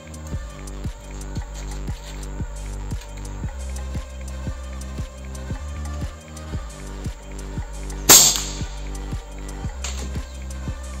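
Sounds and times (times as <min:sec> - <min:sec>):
air rifle shot crack: 0:08.1 - 0:08.8.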